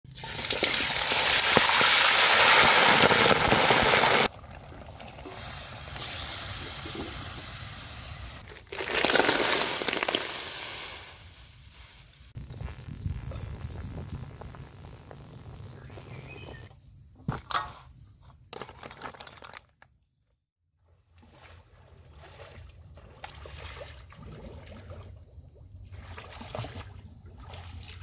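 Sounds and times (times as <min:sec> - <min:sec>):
quieter cooking sounds: 0:00.1 - 0:20.2
loud hiss of wok cooking: 0:05.2 - 0:12.4.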